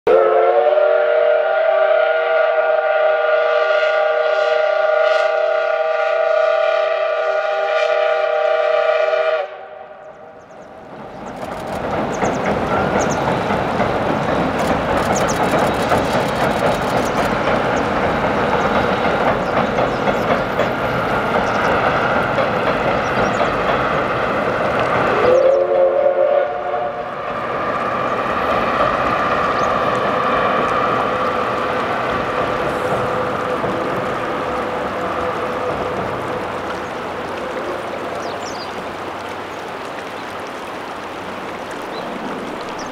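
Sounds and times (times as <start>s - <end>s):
steam train rumbling across bridge: 0.1s - 42.9s
bird chirp: 10.0s - 11.4s, 12.1s - 13.5s, 15.1s - 15.9s, 21.4s - 21.8s
wheels clicking on rails: 10.7s - 25.5s, 27.4s - 42.9s
river water flowing over rocks: 26.8s - 42.9s.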